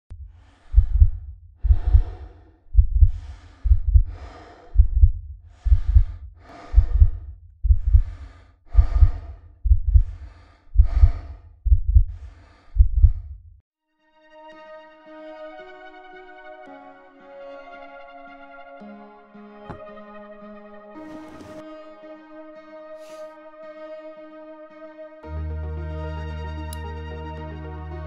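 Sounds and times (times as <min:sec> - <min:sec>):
deep thudding heartbeat: 0:00.1 - 0:13.6
heavy quick breathing: 0:00.3 - 0:13.4, 0:23.0 - 0:23.3
quiet synthesizer music: 0:14.0 - 0:28.0.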